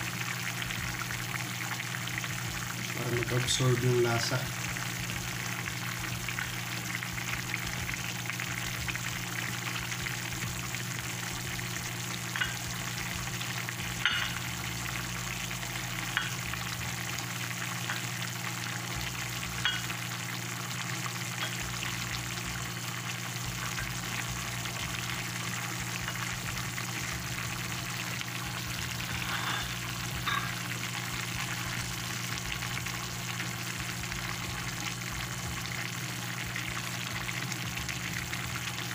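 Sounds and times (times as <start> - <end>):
low steady hum: 0.0 - 20.6, 21.2 - 38.9
stew bubbling and sizzling: 0.0 - 38.9.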